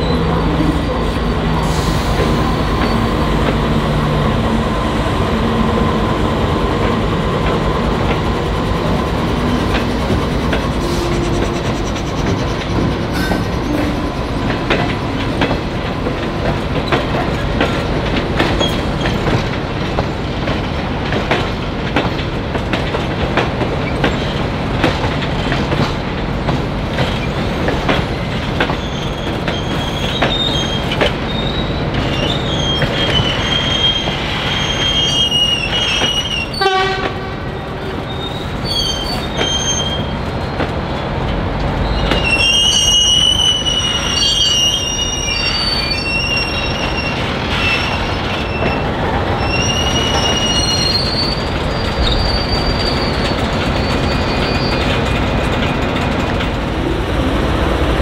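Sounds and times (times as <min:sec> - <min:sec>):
train wheels clicking over rail joints: 0:05.8 - 0:33.4, 0:46.8 - 0:58.0
high wavering wheel squeal: 0:28.8 - 0:36.6, 0:38.1 - 0:40.1, 0:41.8 - 0:55.0.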